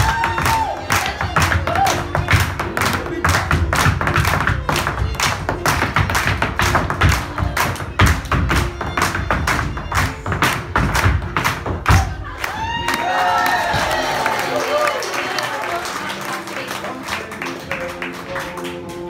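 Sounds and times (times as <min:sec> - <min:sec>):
dance shoes tapping on wood: 0:00.0 - 0:12.9.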